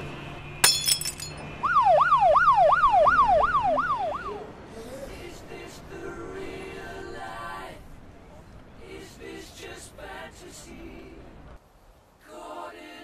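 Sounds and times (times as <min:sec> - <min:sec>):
emergency siren yelping: 0:01.6 - 0:04.5.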